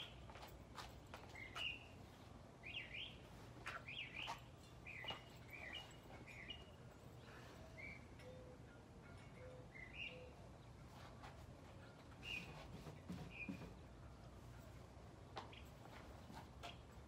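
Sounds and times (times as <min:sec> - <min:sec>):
small bird chirping: 0:01.2 - 0:10.4.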